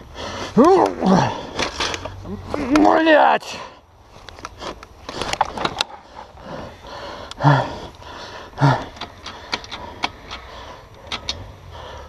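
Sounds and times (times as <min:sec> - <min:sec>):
person breathing: 0:00.0 - 0:00.6, 0:03.5 - 0:12.0
person grunting: 0:00.6 - 0:01.6, 0:02.2 - 0:03.6, 0:07.4 - 0:07.9, 0:08.6 - 0:09.0
sticks cracking: 0:04.2 - 0:06.4
dirt bike knocking and clattering: 0:08.6 - 0:11.4.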